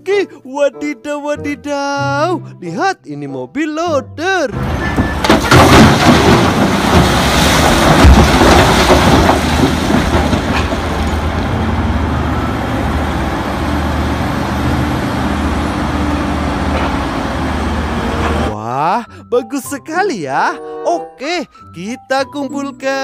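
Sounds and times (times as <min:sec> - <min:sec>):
rock pouring into truck bed: 0:04.6 - 0:11.2
heavy diesel engines running: 0:04.6 - 0:18.6.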